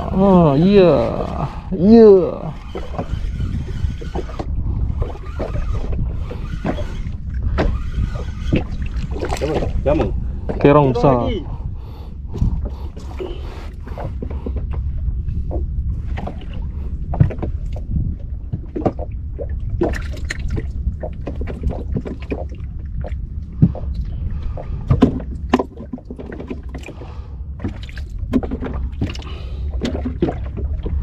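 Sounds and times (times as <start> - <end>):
water lapping against boat hull: 0.0 - 31.0
wind and waves rumble: 0.0 - 31.0.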